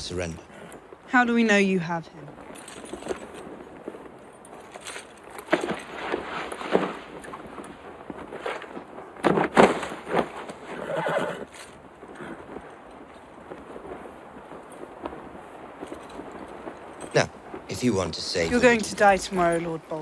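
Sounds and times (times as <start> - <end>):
hooves shifting: 0.0 - 20.0
horses whinnying: 10.4 - 12.5.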